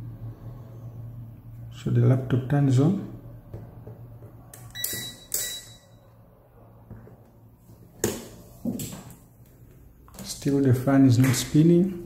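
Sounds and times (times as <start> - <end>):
multimeter beep: 4.7 - 6.1.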